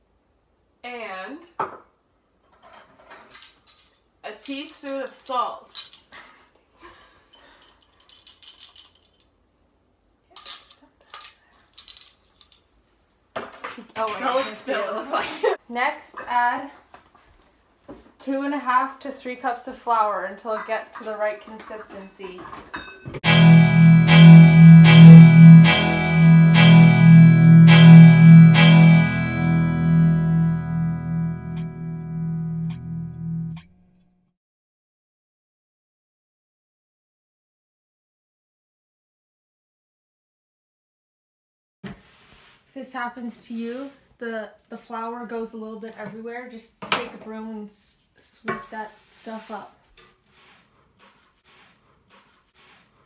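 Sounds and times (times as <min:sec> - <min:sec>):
held low note: 0:23.2 - 0:33.8
effects-laden guitar chords: 0:23.2 - 0:34.0.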